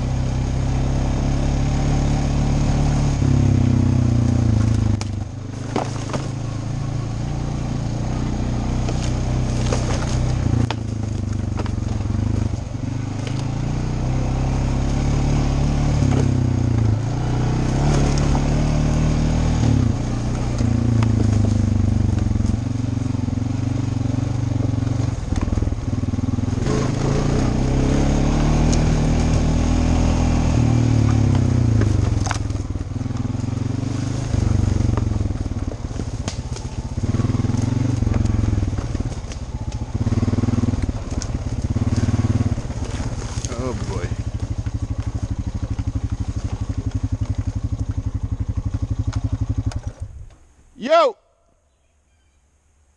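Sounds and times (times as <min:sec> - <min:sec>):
atv engine running: 0:00.0 - 0:51.0
clicks and knocks from trail: 0:04.2 - 0:06.7, 0:08.0 - 0:14.2, 0:16.0 - 0:23.1, 0:24.1 - 0:27.2, 0:28.4 - 0:50.5.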